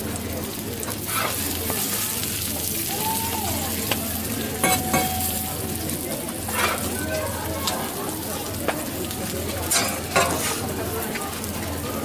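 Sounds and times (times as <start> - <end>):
food sizzling on a griddle: 0.0 - 12.0
metal spatula scraping and clacking: 1.1 - 1.5, 6.5 - 7.0, 9.7 - 10.6.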